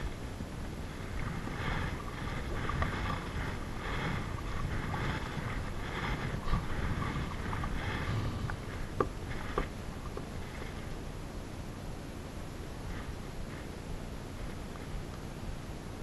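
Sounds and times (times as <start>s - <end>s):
paddle splashing in water: 0.0s - 11.0s
wind on microphone: 0.0s - 11.1s.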